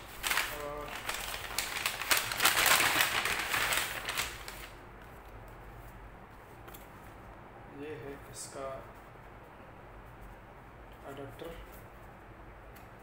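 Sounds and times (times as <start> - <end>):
paper rustling and crinkling: 0.0 - 5.2.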